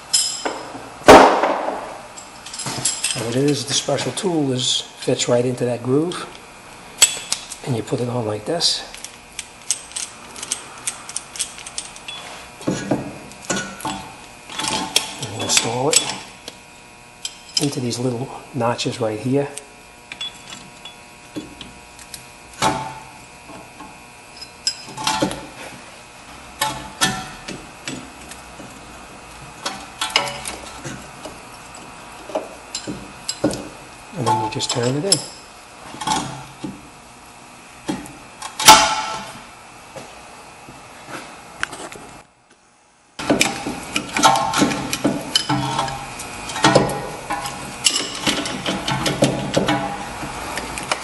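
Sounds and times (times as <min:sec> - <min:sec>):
metallic clinks and knocks: 0:00.1 - 0:00.8, 0:02.2 - 0:03.6
metal clinking and scraping: 0:02.2 - 0:04.2, 0:09.0 - 0:12.9, 0:43.2 - 0:50.1.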